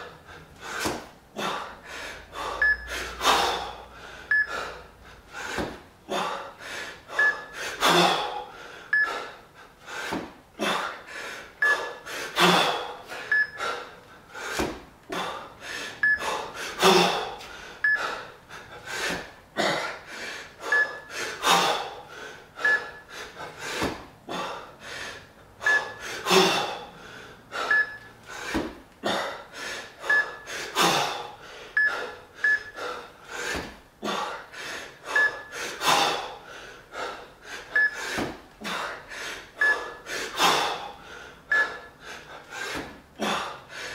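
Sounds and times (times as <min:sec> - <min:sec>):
man breathing hard: 0:00.0 - 0:43.9
man gasping forcefully: 0:40.1 - 0:43.9.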